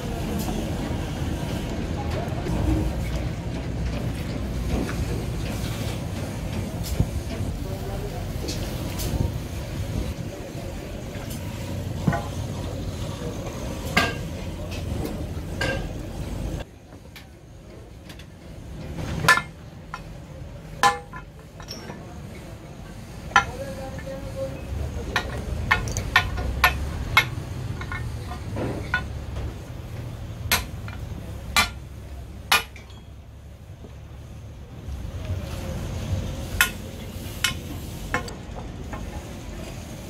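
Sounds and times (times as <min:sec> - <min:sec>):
metal parts clinking on concrete: 0:20.8 - 0:22.0, 0:25.2 - 0:29.2, 0:32.6 - 0:33.2.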